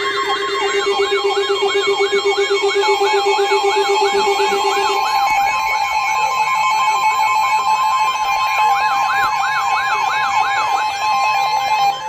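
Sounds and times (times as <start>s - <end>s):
steady alert tone: 0.0s - 5.2s
siren-like whoop: 0.0s - 12.0s.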